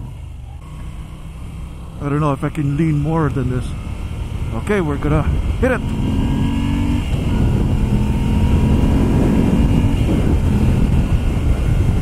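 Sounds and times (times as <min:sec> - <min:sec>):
motorcycle engine accelerating: 0:00.0 - 0:12.0
wind noise: 0:04.2 - 0:12.0.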